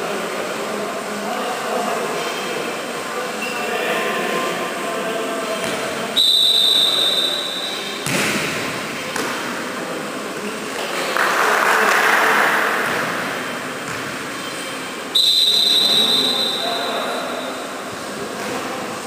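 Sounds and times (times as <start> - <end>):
players' voices: 0.0 - 19.0
referee's whistle blast: 6.2 - 8.0, 15.1 - 17.6
volleyball struck with smack: 8.0 - 9.4.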